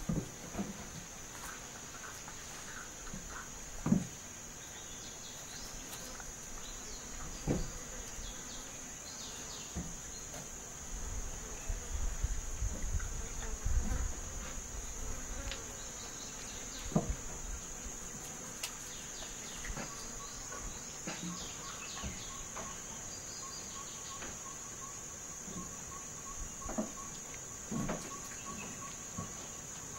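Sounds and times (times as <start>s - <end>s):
insects droning: 0.0s - 29.9s.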